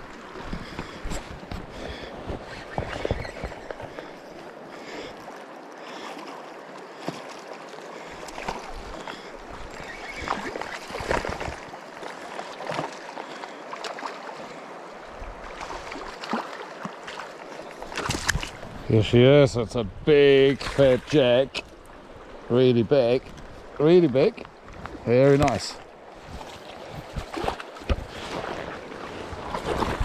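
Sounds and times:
river running over stones: 0:20.1 - 0:30.0.

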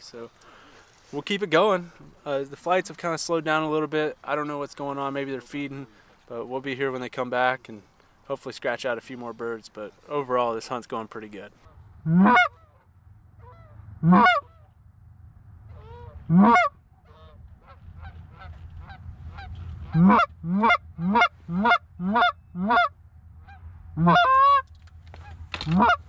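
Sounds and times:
goose call honks: 0:11.6 - 0:14.7, 0:15.7 - 0:26.0.

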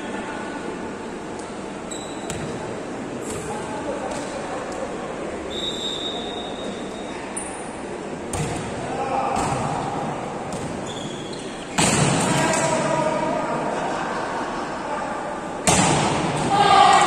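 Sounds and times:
volleyball hits: 0:08.3 - 0:10.8, 0:11.7 - 0:12.9, 0:15.6 - 0:17.0
people shouting and cheering: 0:16.2 - 0:17.0.

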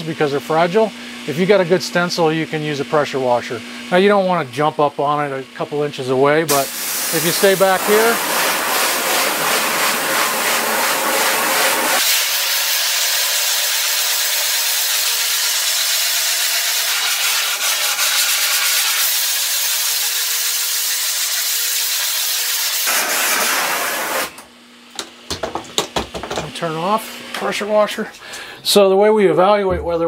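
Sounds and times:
pressure washer spraying water: 0:06.5 - 0:24.4.

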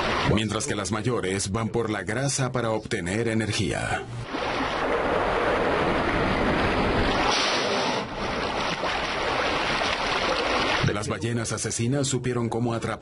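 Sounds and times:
waves washing: 0:00.0 - 0:00.8, 0:04.2 - 0:11.0.

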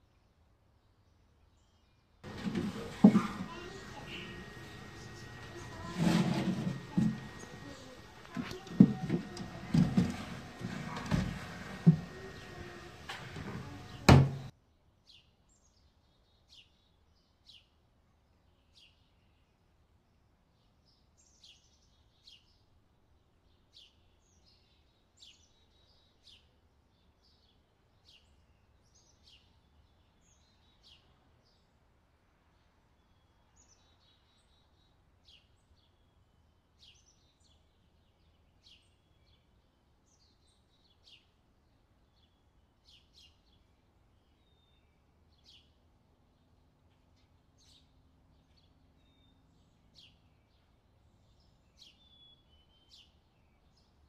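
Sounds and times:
loud noise: 0:02.3 - 0:14.5.

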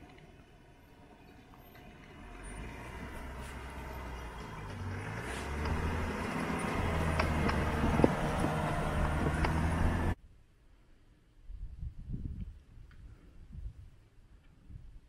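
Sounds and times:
engine running at low revs: 0:00.0 - 0:10.2.

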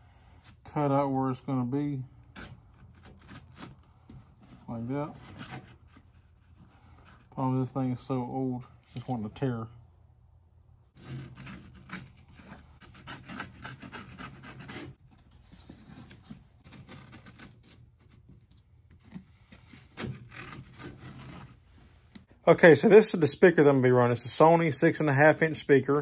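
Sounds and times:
razor blade cutting brittle plastic: 0:11.0 - 0:15.0, 0:16.6 - 0:17.9.

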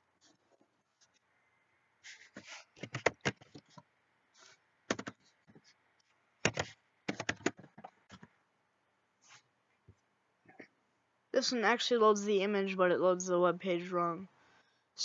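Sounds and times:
computer keyboard typing: 0:02.8 - 0:03.8, 0:04.9 - 0:05.2, 0:06.4 - 0:08.3.

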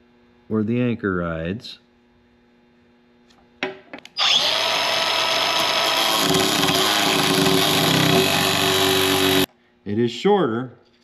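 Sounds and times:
angle grinder grinding steel: 0:04.2 - 0:09.5.

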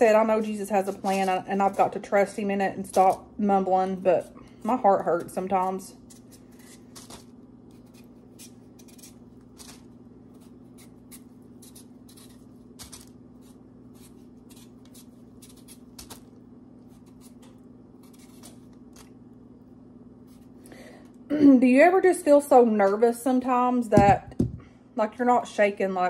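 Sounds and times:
faint steady hum: 0:00.0 - 0:26.0
knife scraping potato skin: 0:00.1 - 0:03.3, 0:05.0 - 0:19.2.

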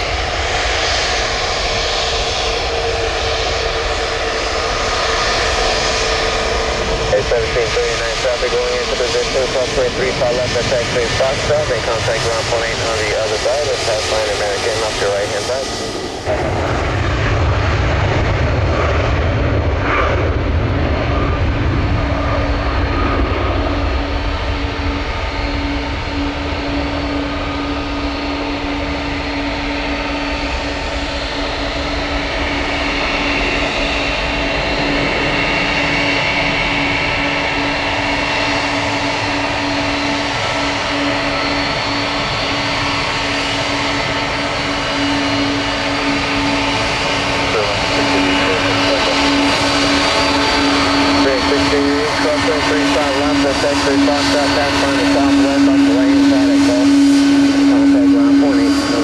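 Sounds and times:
jet engines rumbling and whining: 0:00.0 - 0:59.0.

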